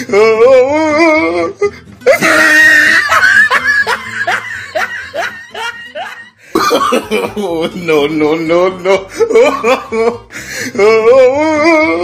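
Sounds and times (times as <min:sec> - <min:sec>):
loud cry: 0:00.0 - 0:06.3
person laughing and whooping: 0:02.0 - 0:08.1, 0:08.7 - 0:12.0.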